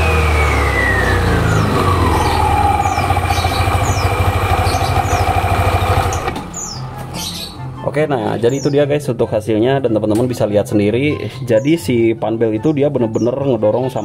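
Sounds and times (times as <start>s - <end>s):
pulley and belt whine: 0.0s - 6.5s
scooter engine running: 0.0s - 7.4s
bird chirps: 1.3s - 7.7s, 8.4s - 8.8s.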